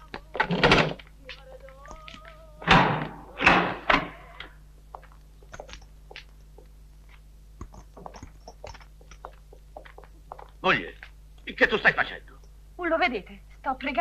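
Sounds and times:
faint footsteps: 0:00.0 - 0:02.6, 0:04.4 - 0:11.5
steady low hum: 0:00.0 - 0:14.0
small clicks: 0:01.3 - 0:02.4
heavy thump: 0:02.6 - 0:04.1.

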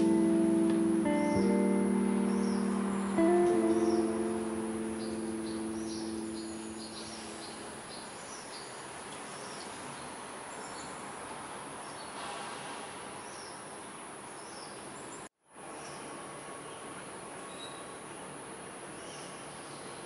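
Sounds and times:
background guitar music: 0:00.0 - 0:07.8
outdoor hiss: 0:00.0 - 0:20.0.

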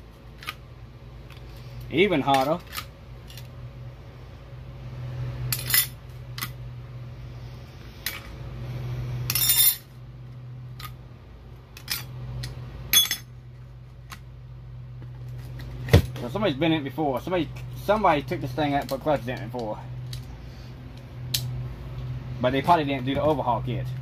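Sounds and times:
steady low hum: 0:00.0 - 0:24.0
metal clutch plates clinking: 0:09.3 - 0:09.8.

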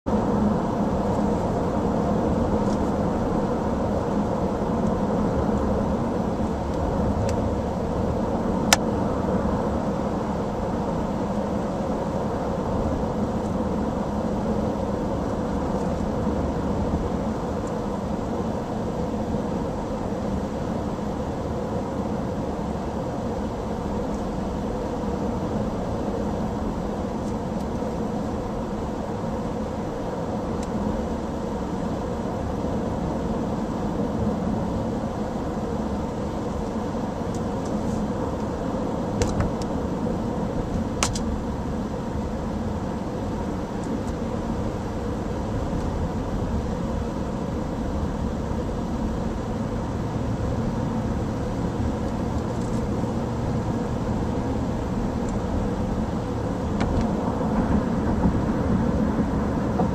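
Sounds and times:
car road and engine noise: 0:00.0 - 0:59.9.

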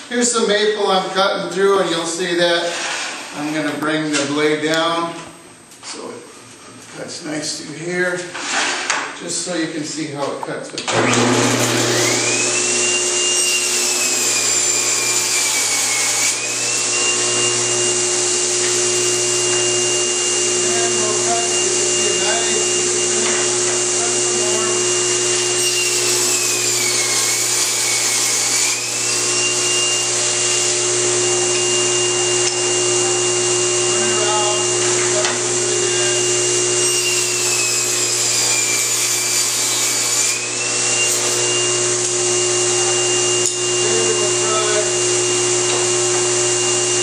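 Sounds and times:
table saw motor hum and whine: 0:10.9 - 0:47.0.

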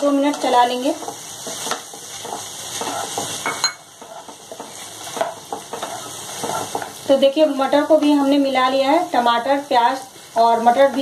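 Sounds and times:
spatula scraping frying pan: 0:00.0 - 0:07.1
vegetables sizzling: 0:00.0 - 0:11.0.

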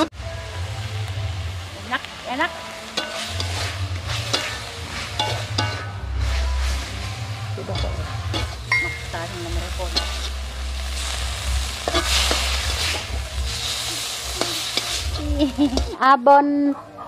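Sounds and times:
fish sizzling in a wok: 0:00.0 - 0:16.2
metal spatula scraping wok: 0:02.0 - 0:16.1
low rumble: 0:03.4 - 0:16.0.

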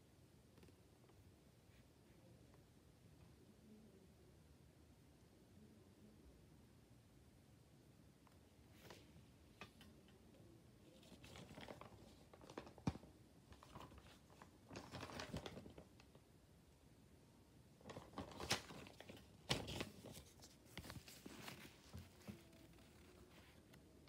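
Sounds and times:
paper rustling: 0:10.9 - 0:16.1, 0:17.8 - 0:23.8.

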